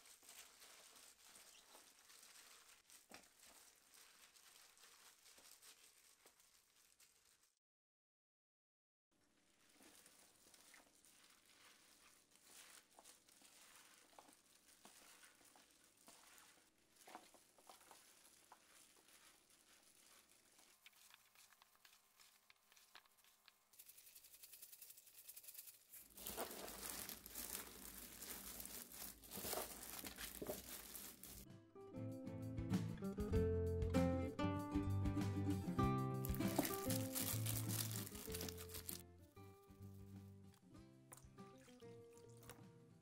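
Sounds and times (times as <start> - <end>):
wet rustling of leaves and gloves: 0.0 - 7.6, 9.2 - 31.5, 35.8 - 39.0.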